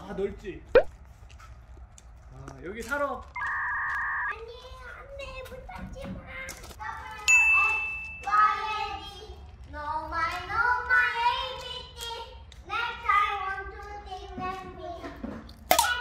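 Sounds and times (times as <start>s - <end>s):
child singing in metal container: 5.3s - 16.0s.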